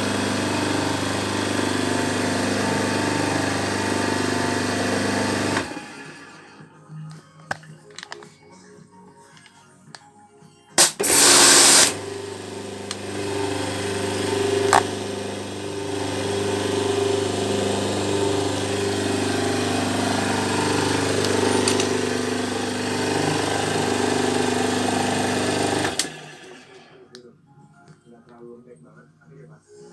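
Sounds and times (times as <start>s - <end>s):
pump motor humming: 0.0s - 6.3s, 10.8s - 26.9s.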